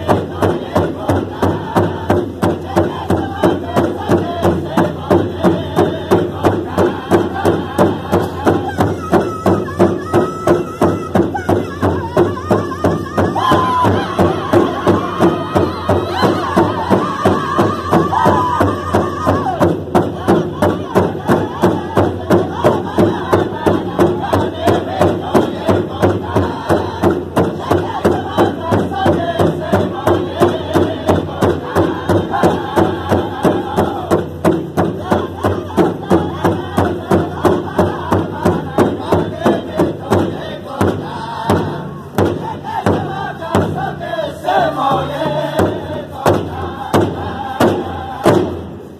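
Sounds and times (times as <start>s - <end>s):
large drum beat in unison: 0.0s - 48.9s
men singing together: 0.0s - 48.9s.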